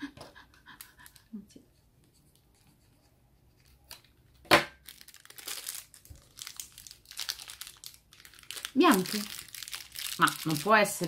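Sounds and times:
plastic crinkling and tearing: 4.8s - 11.0s.

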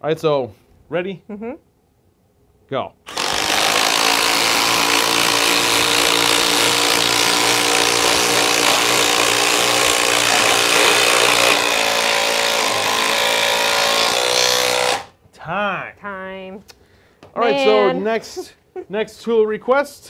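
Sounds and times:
impact drivers hammering into wood: 3.1s - 15.1s.

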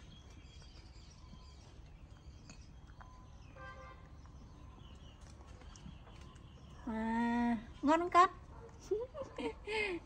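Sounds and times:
small bird chirps: 0.0s - 7.4s.

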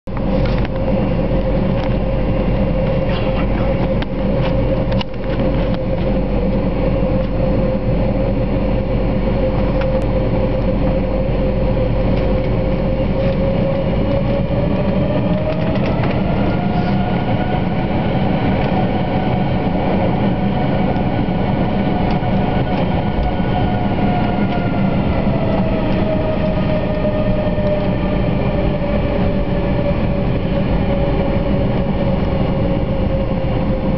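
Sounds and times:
jet engine whine: 0.1s - 33.9s
jet engines rumbling: 0.1s - 33.9s.

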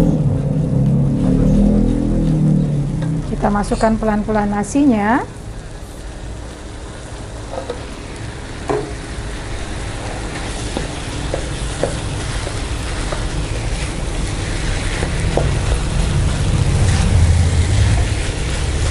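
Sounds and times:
low rumble: 0.0s - 4.8s, 12.9s - 18.9s
food sizzling in a wok: 1.3s - 18.9s
spatula scraping and knocking pan: 10.0s - 18.9s.

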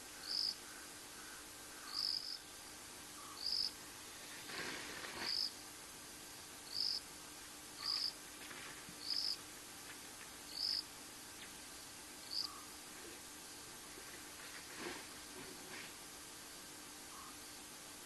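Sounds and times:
faint steady hiss: 0.0s - 18.0s.

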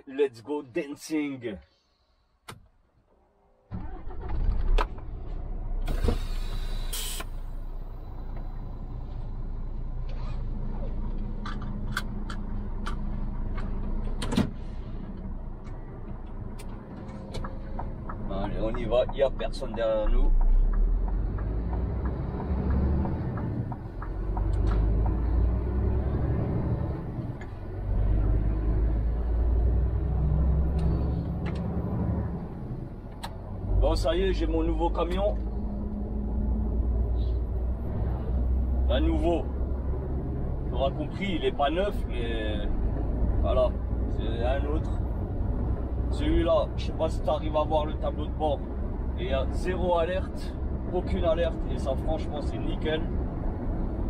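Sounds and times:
truck diesel engine rumbling: 3.7s - 54.0s
loud hiss: 5.9s - 7.4s.

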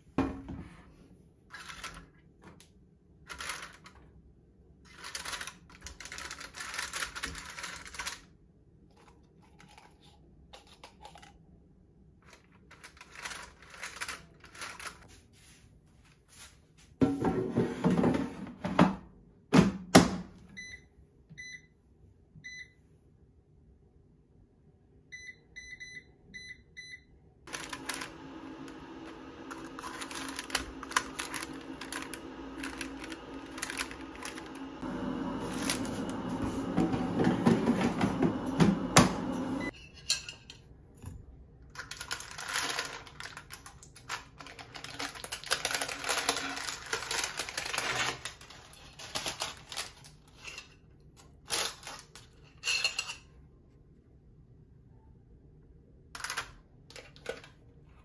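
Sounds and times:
paper liner crinkling: 12.7s - 15.2s, 29.5s - 34.7s, 41.8s - 50.4s
short beeps from touch controls: 20.6s - 21.7s, 22.4s - 22.8s, 25.1s - 27.1s
air fryer rushing noise: 27.5s - 39.7s
air fryer basket clunking shut: 35.2s - 39.6s.

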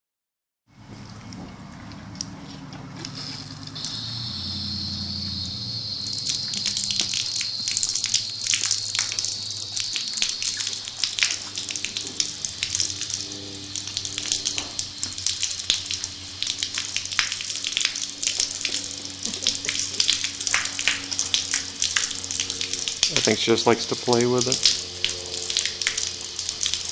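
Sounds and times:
hose nozzle spraying water: 3.0s - 26.9s
water splattering on horse's muzzle: 3.0s - 26.9s.

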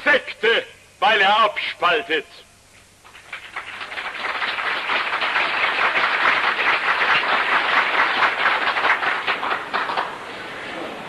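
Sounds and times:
audience applauding: 3.0s - 10.4s.

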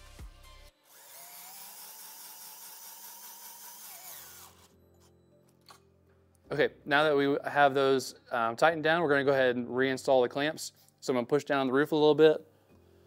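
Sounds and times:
power screwdriver motor whine: 0.8s - 4.8s.

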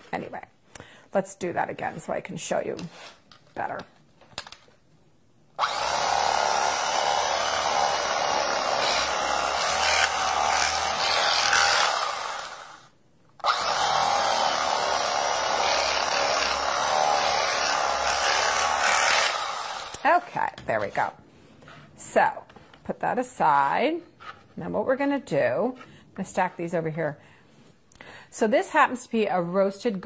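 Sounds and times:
electric knife motor whining: 5.6s - 20.0s.

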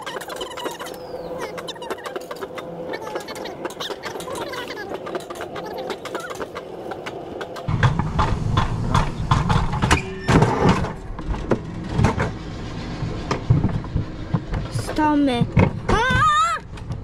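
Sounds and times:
coaster sled rumbling on metal track: 0.0s - 17.0s.

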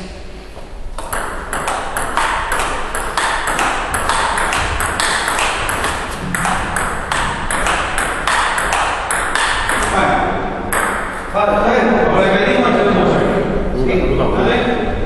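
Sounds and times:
ping pong ball clicking: 1.0s - 9.9s, 10.7s - 11.2s.

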